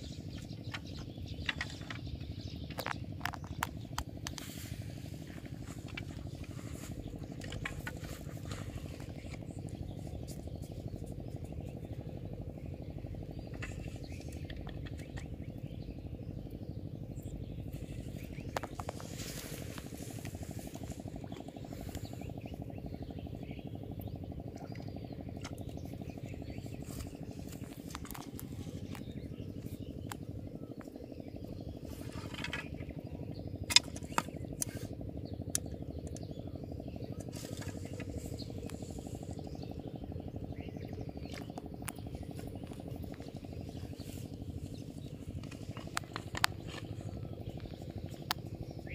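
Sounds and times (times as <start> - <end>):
low pulsing drone: 0.0 - 48.9
sharp clicks: 33.6 - 34.8.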